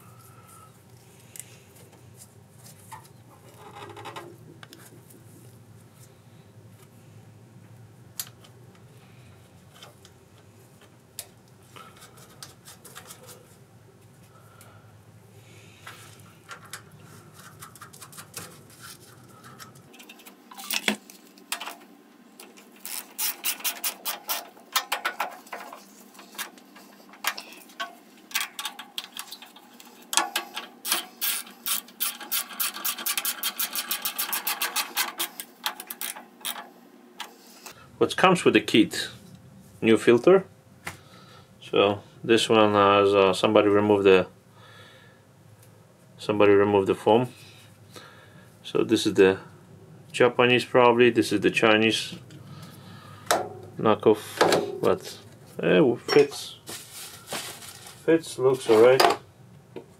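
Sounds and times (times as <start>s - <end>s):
tools clicking and scraping metal parts: 16.4s - 21.8s, 22.4s - 37.8s.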